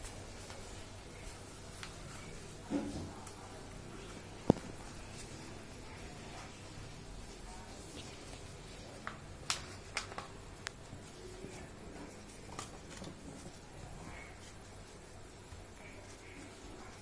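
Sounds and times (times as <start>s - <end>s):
paper rustling: 7.8s - 10.5s
paper crinkle clicks: 9.0s - 10.8s.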